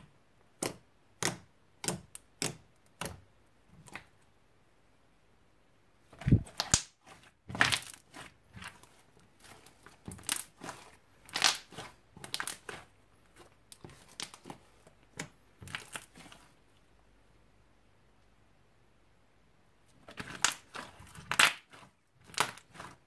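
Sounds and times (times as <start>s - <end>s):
slime squishing: 0.0s - 4.3s, 6.0s - 16.9s, 19.9s - 23.0s.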